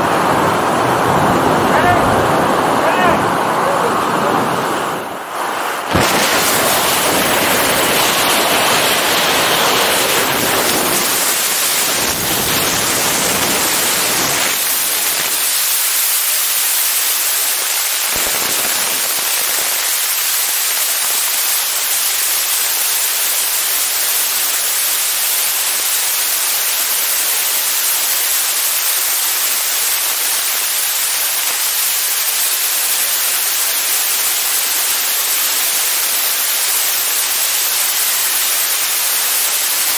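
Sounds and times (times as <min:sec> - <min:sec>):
freefall wind rushing on microphone: 0:00.0 - 0:21.4.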